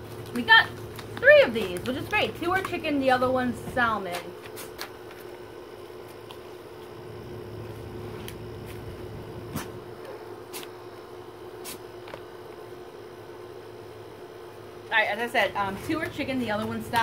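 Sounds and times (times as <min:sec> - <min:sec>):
package crinkling: 0:00.0 - 0:09.7
low room hum: 0:00.0 - 0:17.0.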